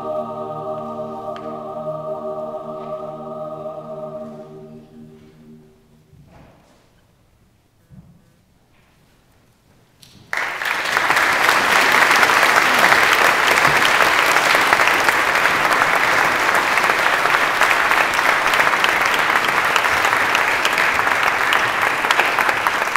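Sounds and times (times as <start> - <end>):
audience clapping: 10.0 - 22.9.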